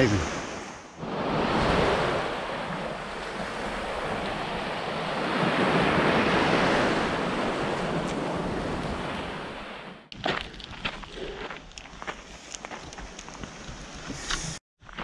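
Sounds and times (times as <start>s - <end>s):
sea waves washing onto shore: 0.0s - 10.0s.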